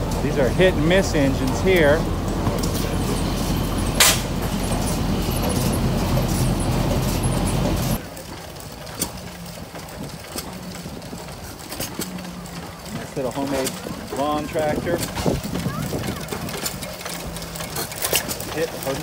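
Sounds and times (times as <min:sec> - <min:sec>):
gas engines running rhythmically: 0:00.0 - 0:19.0
engine bang: 0:02.3 - 0:08.0.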